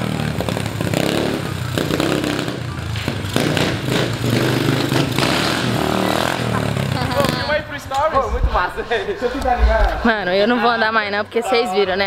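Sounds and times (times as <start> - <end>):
pit bike engine running: 0.0 - 7.8.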